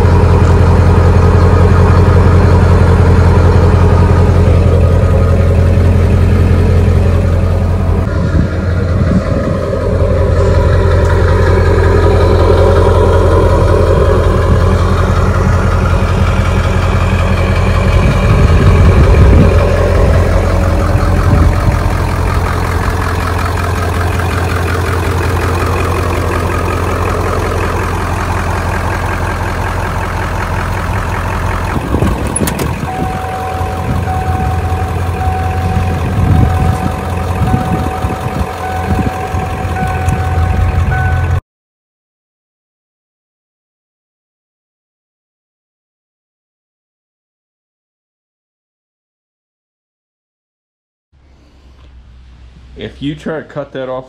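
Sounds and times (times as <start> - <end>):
diesel engine idling: 0.0 - 41.4
electronic warning tone: 32.4 - 41.4.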